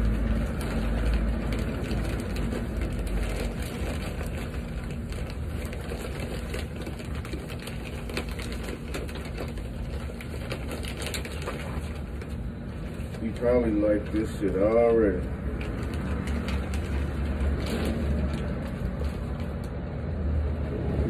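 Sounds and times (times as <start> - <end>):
soil pouring into a pot: 0.0 - 8.9
plastic bag crinkling: 0.0 - 20.2.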